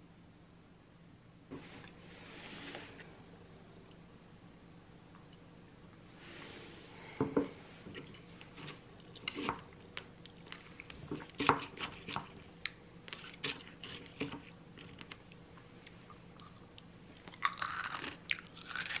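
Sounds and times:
granola crunching: 17.2 - 19.0.

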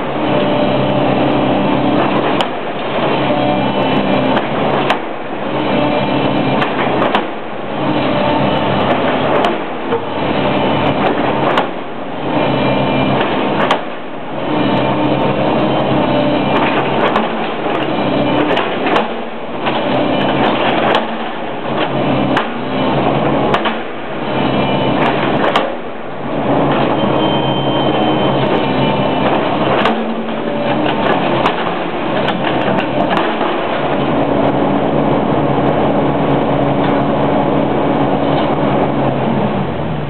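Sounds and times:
excavator diesel engine running: 0.0 - 40.0
bucket pounding on wooden timbers: 29.2 - 33.7.

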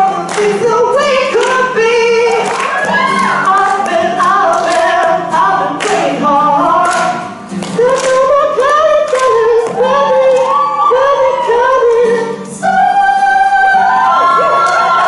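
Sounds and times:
acoustic guitar strumming: 0.0 - 15.0
person singing: 0.0 - 15.0.

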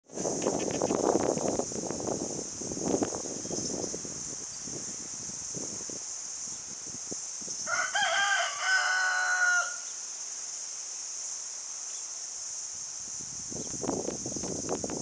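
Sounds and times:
rooster crowing: 7.6 - 9.9.

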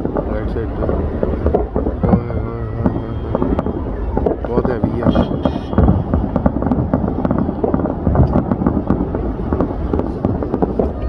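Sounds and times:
fireworks booming: 0.0 - 11.0
fireworks cracks and pops: 0.0 - 11.0.

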